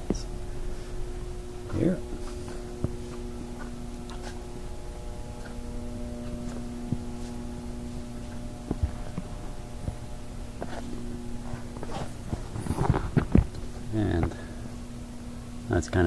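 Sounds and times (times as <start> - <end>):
low handling rumble: 0.0 - 15.7
steady electrical hum: 0.0 - 16.0.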